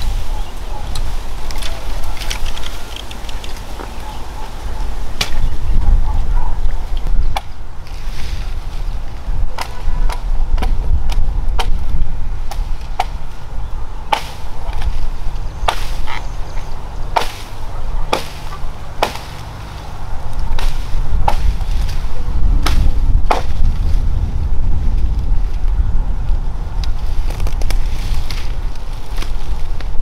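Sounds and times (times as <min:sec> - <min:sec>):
low steady rumble: 0:00.0 - 0:30.0
chopping strikes: 0:09.5 - 0:13.2, 0:14.1 - 0:15.0, 0:15.7 - 0:16.2, 0:17.1 - 0:19.5, 0:20.5 - 0:22.0, 0:22.6 - 0:23.8.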